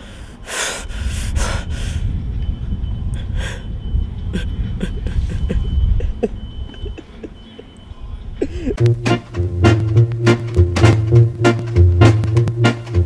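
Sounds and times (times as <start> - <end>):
wind on microphone: 0.8 - 7.0
man gasping: 4.4 - 5.6, 8.4 - 8.8
man making strained sounds: 4.4 - 7.3, 8.4 - 8.8.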